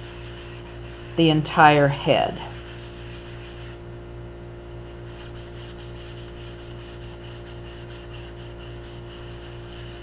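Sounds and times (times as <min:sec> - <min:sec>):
steady low hum: 0:00.0 - 0:10.0
fingers rubbing paste: 0:02.3 - 0:03.8, 0:05.1 - 0:10.0.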